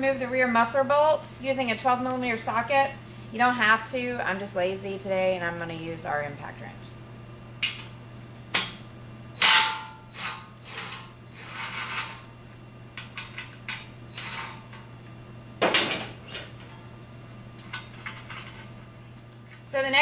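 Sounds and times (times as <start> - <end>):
impact wrench hammering: 9.4 - 10.4.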